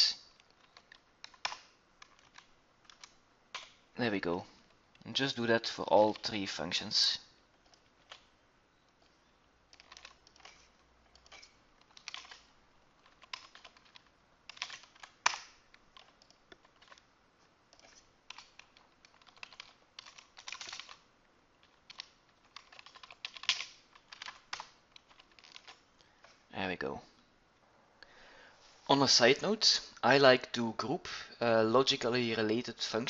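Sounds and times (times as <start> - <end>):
typing on a keyboard: 0.3 - 3.8, 9.7 - 17.0, 17.7 - 21.0, 21.6 - 25.8.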